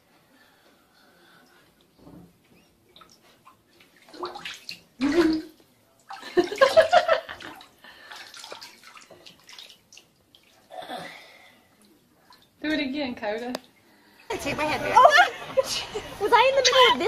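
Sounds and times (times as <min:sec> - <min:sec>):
water splashing in a bathtub: 0:01.2 - 0:17.0.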